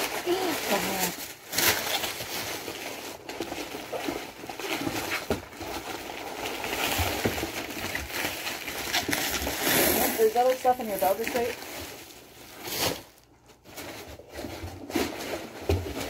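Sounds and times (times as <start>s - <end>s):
packaging rustling and crinkling: 0.0s - 16.0s.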